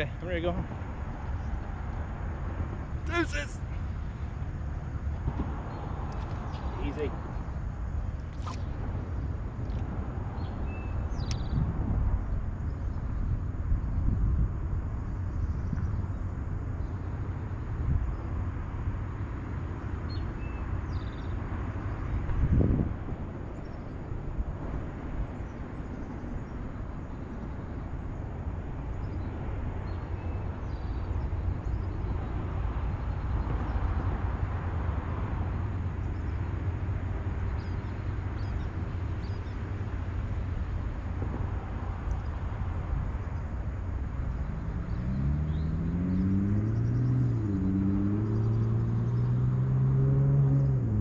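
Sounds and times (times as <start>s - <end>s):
wind buffeting microphone: 0.0s - 49.7s
motor drone rising in pitch: 44.5s - 51.0s.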